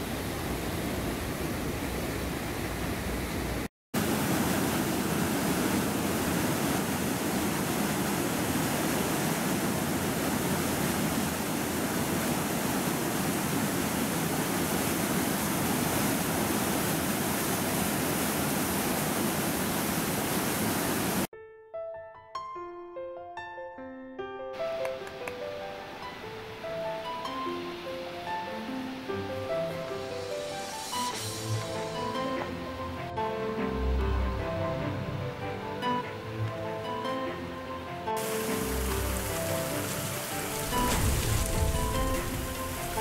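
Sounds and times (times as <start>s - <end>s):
rushing water roar: 0.0s - 21.3s, 24.6s - 43.0s
instrumental music melody: 21.3s - 40.6s.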